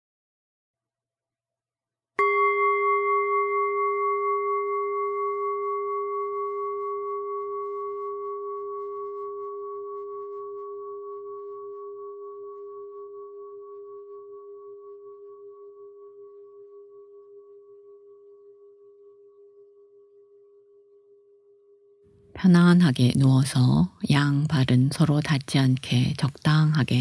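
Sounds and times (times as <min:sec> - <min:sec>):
meditation bell ringing: 0:02.2 - 0:22.0.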